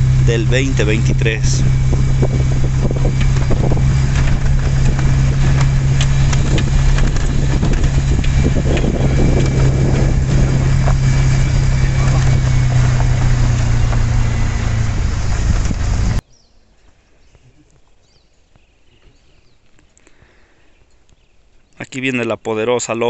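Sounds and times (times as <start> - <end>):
tyres on gravel: 0.0 - 16.2
vehicle engine droning: 0.0 - 16.2
knocks and rattles: 1.6 - 16.2.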